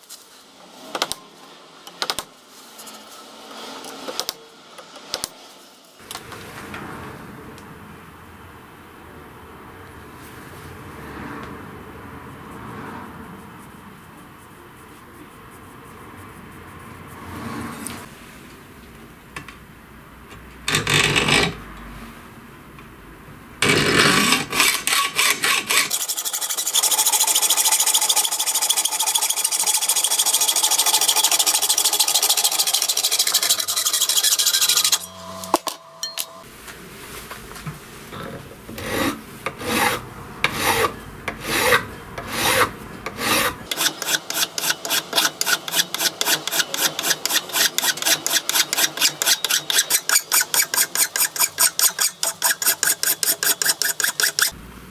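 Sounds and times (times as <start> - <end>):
hacksaw sawing through brass: 23.6 - 35.2, 38.8 - 54.6
metal file rasping: 23.6 - 35.2, 38.8 - 54.6.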